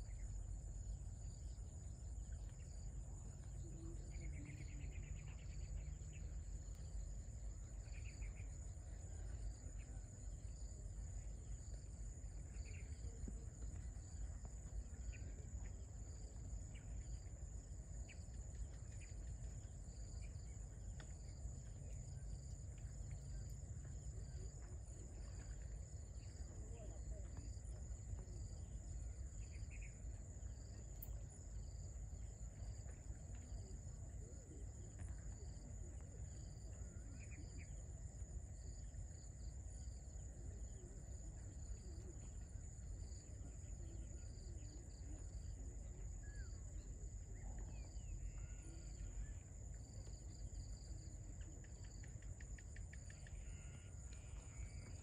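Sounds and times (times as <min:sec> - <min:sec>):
insects chirping chorus: 0:00.0 - 0:55.0
pulsing insect trill: 0:47.4 - 0:55.0.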